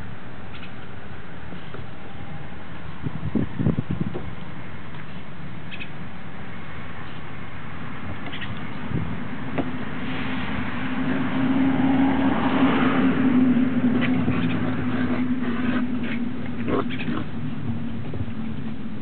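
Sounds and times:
car passing by: 8.8 - 17.1.

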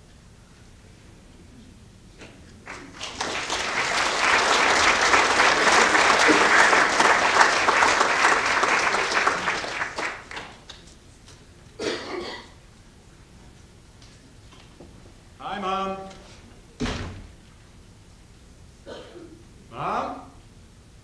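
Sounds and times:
audience applauding: 2.6 - 10.9.

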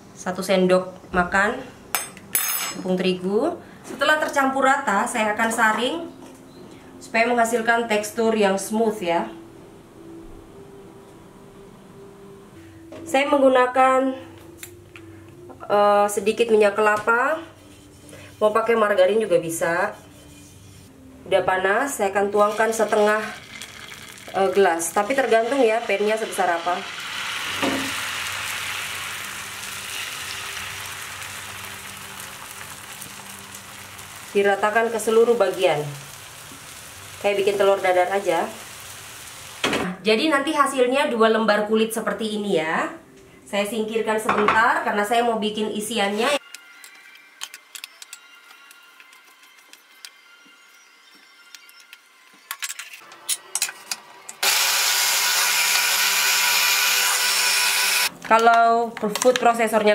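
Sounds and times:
batter sizzling in pan: 22.5 - 39.7
electric food processor running: 54.4 - 58.1.

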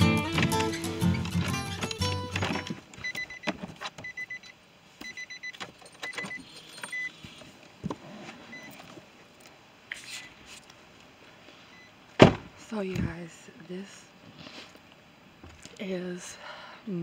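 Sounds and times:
car warning chime beeps: 3.0 - 7.2, 8.5 - 8.8.

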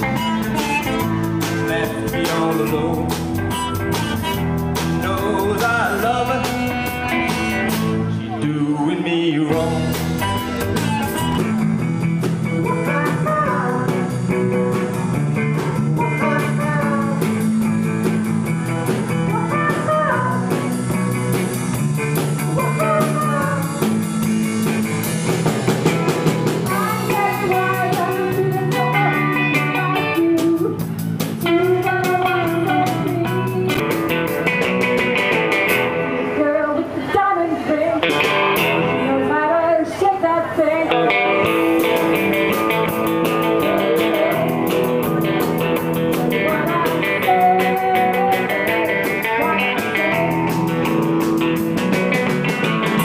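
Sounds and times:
drum kit: 0.0 - 8.2, 9.5 - 36.2, 38.0 - 39.1, 41.1 - 53.0
bass guitar: 0.0 - 37.0, 38.0 - 39.6, 40.8 - 53.0
electric guitar: 0.0 - 53.0.

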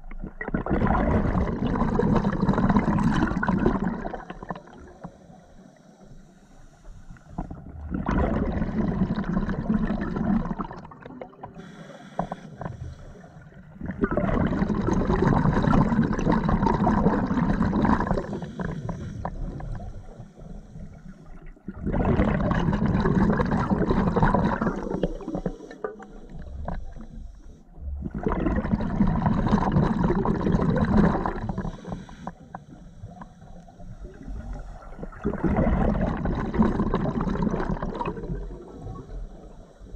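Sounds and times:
exhaled bubbles underwater: 0.0 - 5.8, 7.2 - 39.9
regulator inhalations: 4.5 - 7.6, 11.5 - 13.4, 17.6 - 21.4, 24.5 - 27.7, 31.2 - 34.8.

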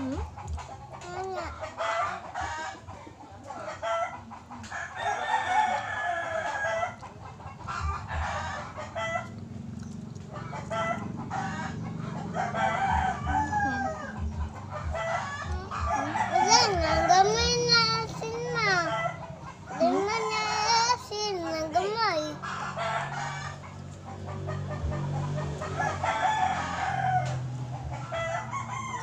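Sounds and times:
chickens clucking: 0.0 - 29.0
rooster crowing: 4.8 - 7.0, 10.8 - 17.8, 22.4 - 23.6, 25.3 - 29.0.

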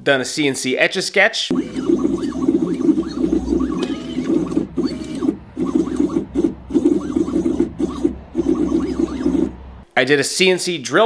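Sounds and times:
stepper motors whining: 1.5 - 9.8.

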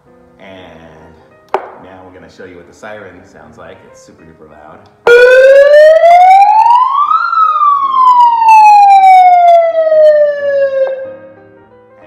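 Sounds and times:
megaphone siren wailing: 5.1 - 11.1.

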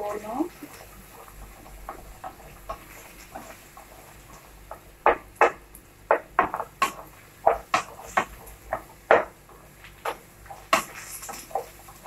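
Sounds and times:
wooden spatula scraping a pan: 0.0 - 5.2, 9.9 - 12.0.

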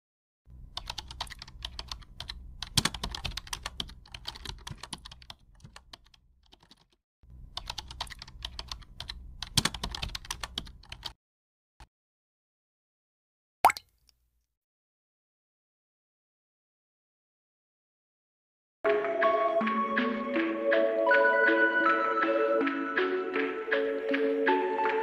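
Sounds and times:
keyboard typing clicks: 0.7 - 11.2.

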